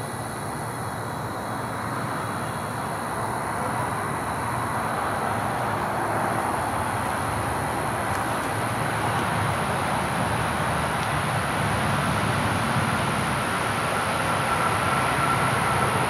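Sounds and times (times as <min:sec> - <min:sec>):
distant road traffic hum: 0:00.0 - 0:16.0
thin high whine: 0:13.1 - 0:16.0.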